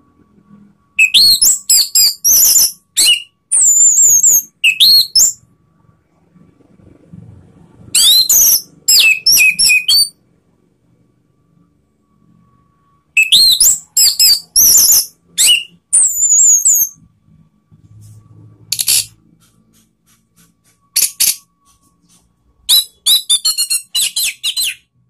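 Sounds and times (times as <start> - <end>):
thrush singing whistled notes: 1.0 - 5.4, 8.0 - 10.2, 13.2 - 17.0, 22.6 - 24.9.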